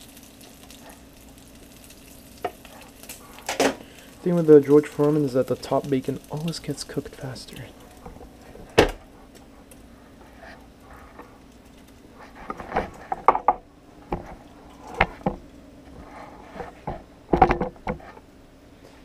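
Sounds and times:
steady low hum: 0.0s - 19.0s
kitchen items knocking and clattering: 3.5s - 3.9s, 12.4s - 15.4s, 16.8s - 18.0s.

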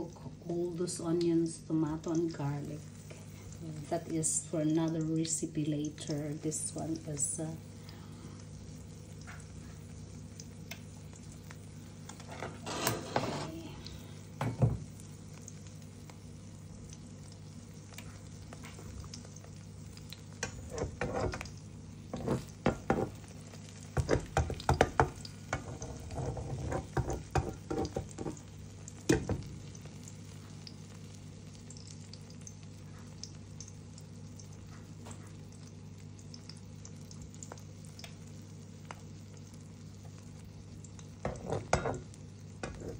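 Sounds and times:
egg sizzling in a pan: 0.0s - 42.9s
spatula scraping a pan: 12.2s - 13.6s, 20.4s - 21.5s, 22.1s - 23.2s, 25.5s - 28.4s, 41.2s - 42.9s.

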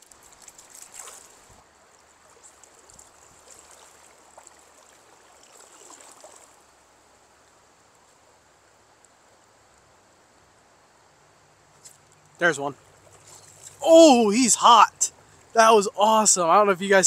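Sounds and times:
water splashing: 0.0s - 6.8s, 12.4s - 16.0s
river current running: 0.0s - 17.0s.

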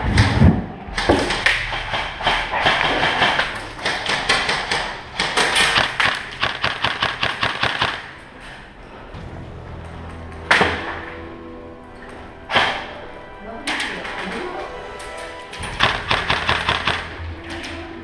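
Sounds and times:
background music: 0.0s - 18.0s
airsoft gunfire cracks echoing: 1.0s - 8.2s, 15.6s - 17.2s.

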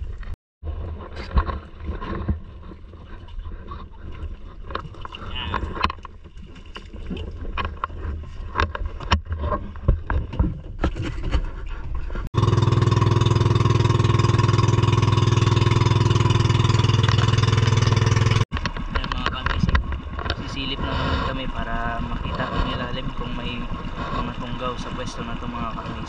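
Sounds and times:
boat engine running: 11.8s - 26.0s.

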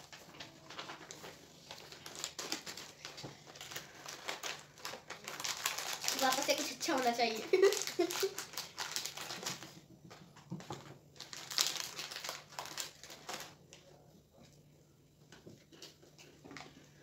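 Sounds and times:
plastic packet crinkling: 0.0s - 9.8s, 10.6s - 13.6s.

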